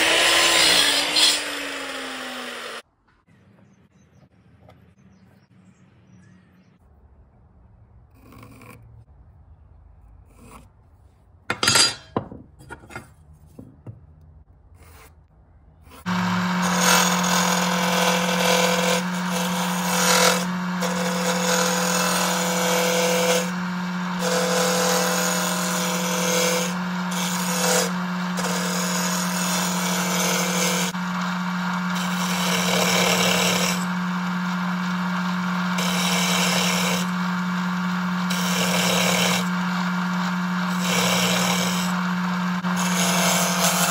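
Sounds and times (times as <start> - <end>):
lathe motor hum: 0.0 - 2.8, 16.0 - 43.9
turning tool scraping wood: 14.8 - 43.9.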